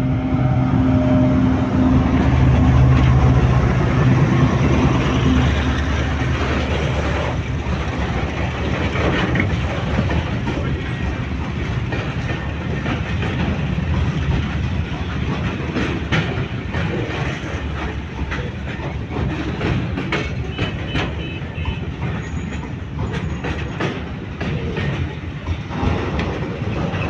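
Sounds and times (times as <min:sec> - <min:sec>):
train wheels rumbling on rails: 0:00.0 - 0:27.0
wheels clicking over rail joints: 0:02.1 - 0:27.0.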